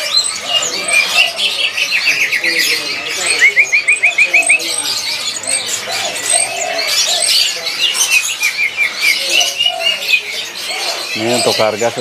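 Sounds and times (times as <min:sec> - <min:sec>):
songbirds chirping and whistling: 0:00.0 - 0:12.0.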